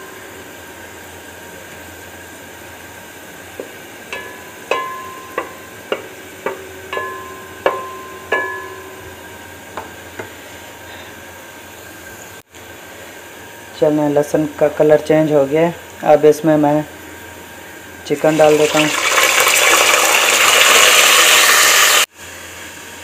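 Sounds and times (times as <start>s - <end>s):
spatula knocking on ringing pot: 3.6s - 10.3s
garlic sizzling in hot oil: 18.2s - 22.1s.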